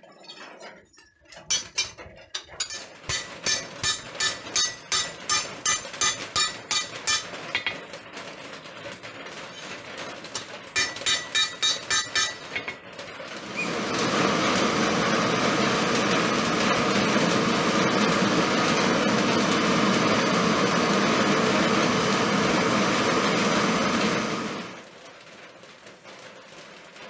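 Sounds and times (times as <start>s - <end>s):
hammer blows on blade on anvil: 2.6s - 7.7s, 10.8s - 12.8s.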